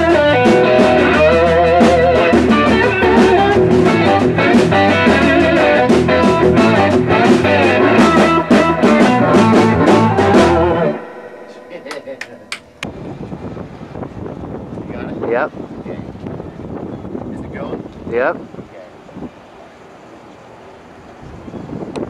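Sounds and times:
drum beats: 0.0 - 13.0
bass line: 0.0 - 14.1
slide electric guitar: 0.0 - 14.3.

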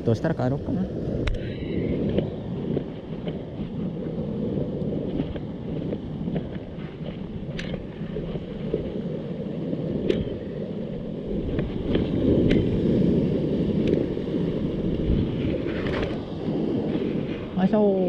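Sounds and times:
surf washing on rocky shore: 0.0 - 18.0
wind rumbling on microphone: 0.0 - 18.0.

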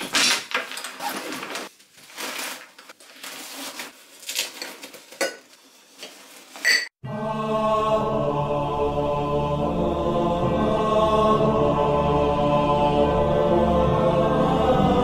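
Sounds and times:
rustling and clattering objects: 0.0 - 6.9.

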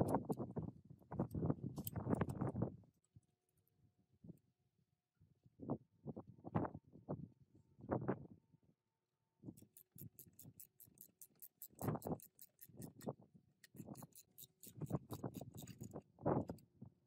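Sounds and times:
socket ratchet clicking: 9.6 - 15.9.

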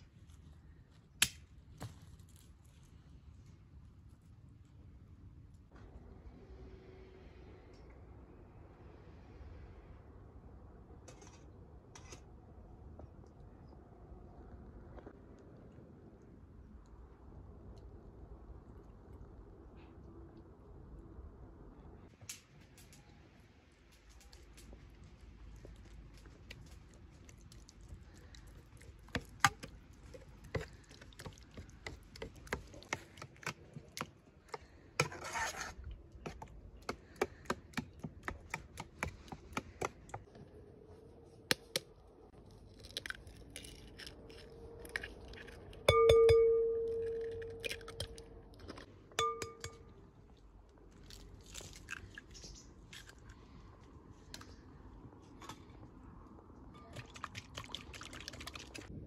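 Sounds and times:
metal spoon scraping steel bowl: 35.0 - 35.8
metal vessel ringing: 45.9 - 48.2, 49.2 - 50.0.

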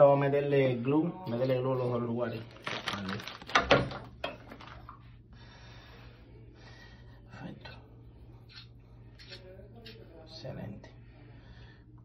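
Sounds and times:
low steady hum: 0.0 - 12.0
person breathing softly: 5.2 - 9.3, 10.9 - 12.0.

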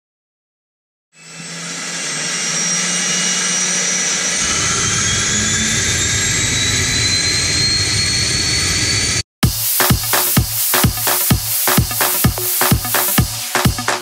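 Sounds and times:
aircraft engine whine: 1.2 - 9.3.

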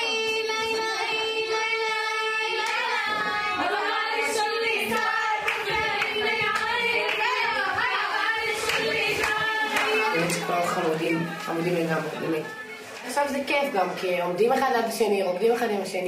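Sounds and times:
women singing: 0.0 - 14.0
hand claps: 2.6 - 3.1, 4.9 - 7.7, 8.6 - 11.4.

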